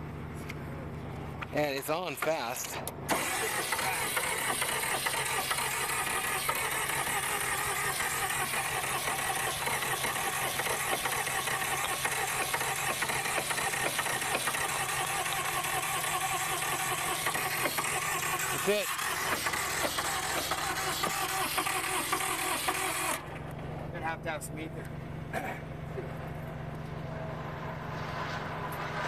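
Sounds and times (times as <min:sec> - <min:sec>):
diesel engine cranking: 0:00.0 - 0:29.0
spray can hissing: 0:07.3 - 0:23.1.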